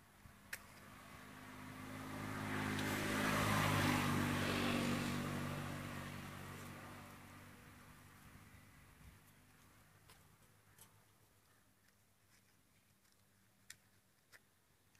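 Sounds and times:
vehicle driving past: 0:00.8 - 0:09.0.

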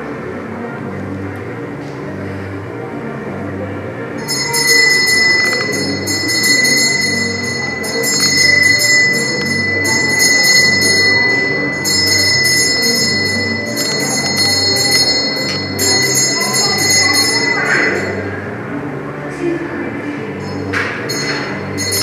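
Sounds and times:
small bells jingling: 0:04.2 - 0:18.4, 0:20.4 - 0:22.0.

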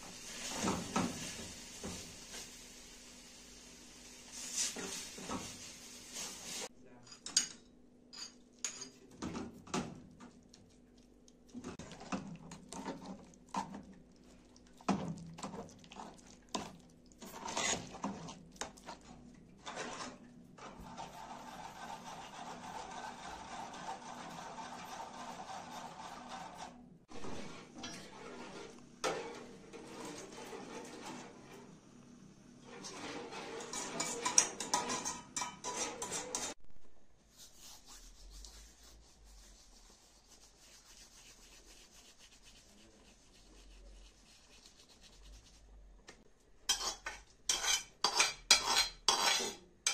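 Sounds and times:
metal spoons clinking on pots: 0:07.0 - 0:09.2, 0:33.6 - 0:36.6.

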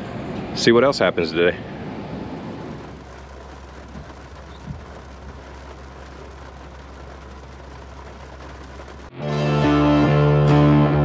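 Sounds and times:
heavy rain on truck roof: 0:02.1 - 0:09.1.

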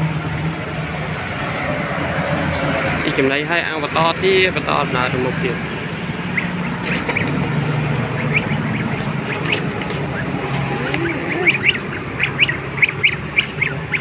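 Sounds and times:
goslings peeping: 0:05.9 - 0:14.0.

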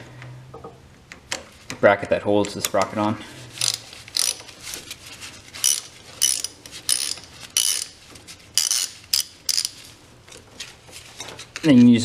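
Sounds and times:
socket ratchet clicking: 0:03.6 - 0:04.5, 0:05.6 - 0:08.0, 0:08.6 - 0:09.8.

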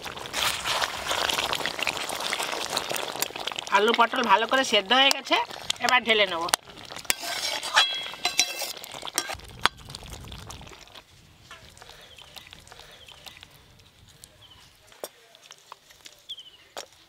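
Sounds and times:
metal spatula scraping a pot: 0:06.9 - 0:09.4.

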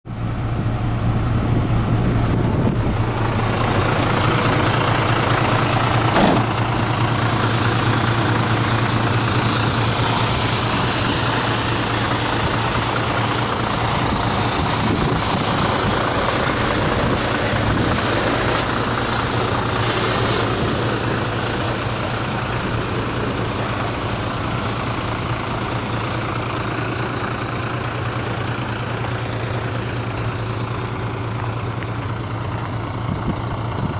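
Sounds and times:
diesel truck engine idling: 0:00.1 - 0:33.9
brief knock: 0:06.2 - 0:06.6.

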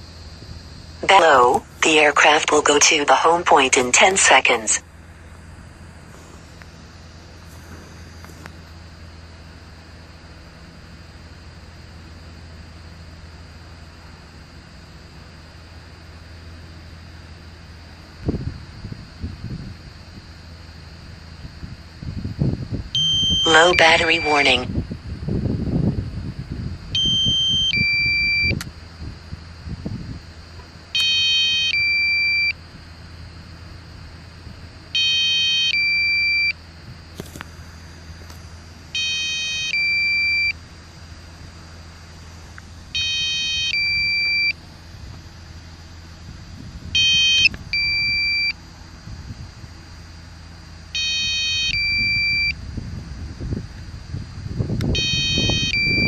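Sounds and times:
controller alarm beeping: 0:23.0 - 0:24.7, 0:31.0 - 0:32.6, 0:39.0 - 0:40.5, 0:43.0 - 0:44.6, 0:47.0 - 0:48.6, 0:51.0 - 0:52.5, 0:55.0 - 0:56.0.

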